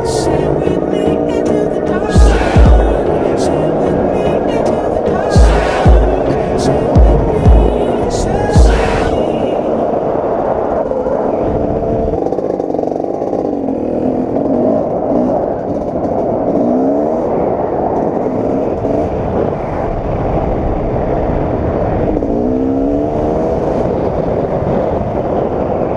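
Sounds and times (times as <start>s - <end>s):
dirt bike engine revving: 0.0s - 9.2s, 12.2s - 19.4s.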